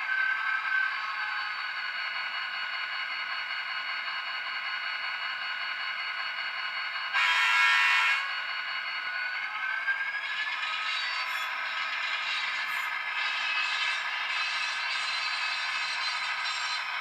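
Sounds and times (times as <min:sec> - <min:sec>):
loud tone: 0:07.2 - 0:08.4.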